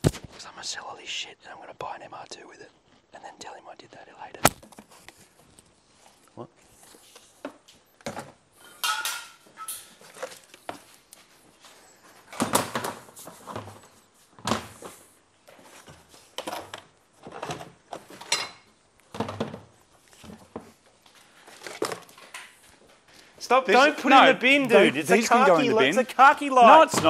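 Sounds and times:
plastic parts knocking and clattering: 12.3s - 14.8s, 15.9s - 18.4s, 19.1s - 20.7s.

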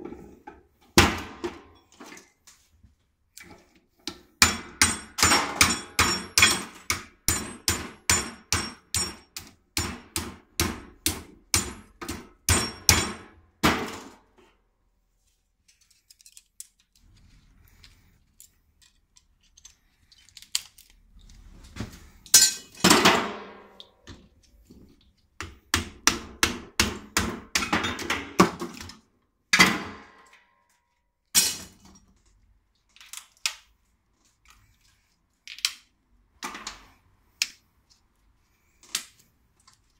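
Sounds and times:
hammer striking metal: 4.4s - 14.0s.

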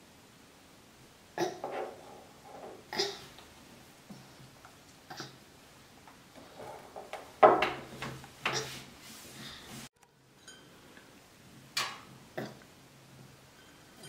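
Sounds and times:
tableware knocking on table: 1.6s - 2.9s, 6.5s - 8.2s.

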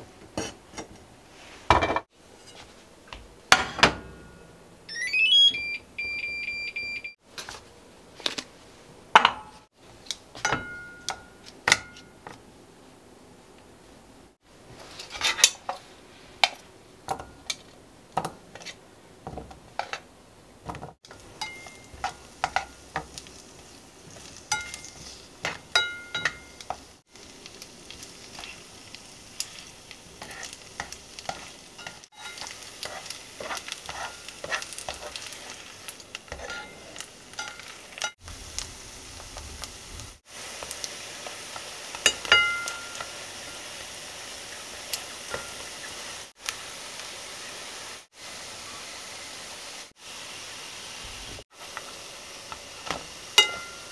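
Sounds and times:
tongs tapping a pan: 10.4s - 12.4s, 21.0s - 23.3s, 24.5s - 26.9s, 30.2s - 35.3s, 36.1s - 38.2s, 41.6s - 43.2s, 44.9s - 45.8s, 52.9s - 53.9s
food sizzling in butter: 21.0s - 53.9s.

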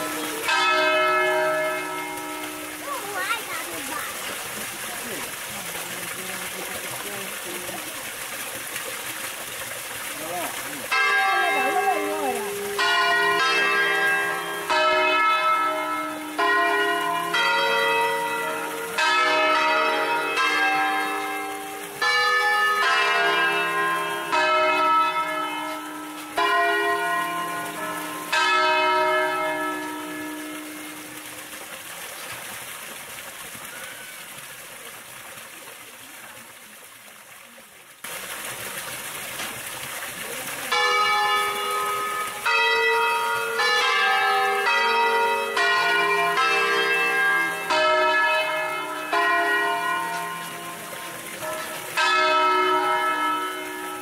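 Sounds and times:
church bells pealing: 0.0s - 4.3s, 10.8s - 31.3s, 40.6s - 54.0s.

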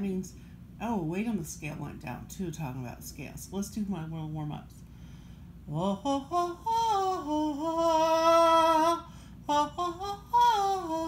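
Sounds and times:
woman singing vocal warm-up: 5.6s - 11.0s.

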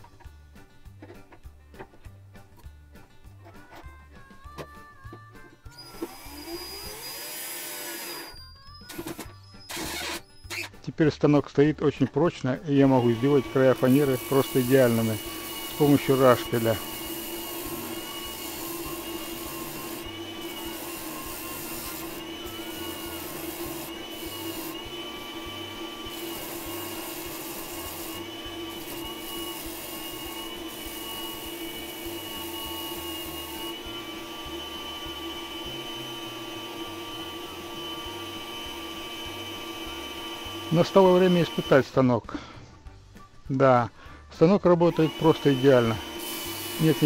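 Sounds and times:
food processor motor whine: 5.8s - 10.2s, 12.8s - 41.8s, 44.9s - 47.0s
rasp scraping wooden disc: 12.9s - 33.8s.

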